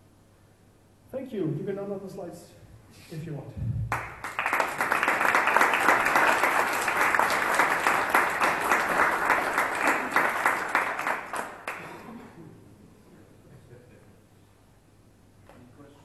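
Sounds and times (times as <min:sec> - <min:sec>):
audience applauding: 0:03.9 - 0:12.2.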